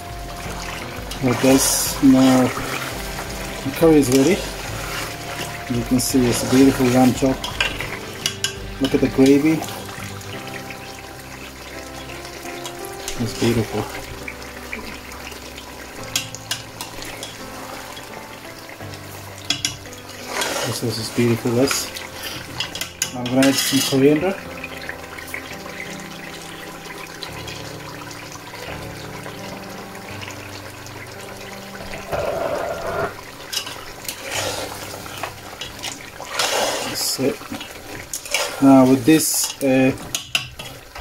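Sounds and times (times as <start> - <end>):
curry bubbling and sizzling in a pot: 0.0 - 41.0
metal ladle clinking against pot: 6.3 - 9.4, 16.1 - 17.4, 22.5 - 24.0.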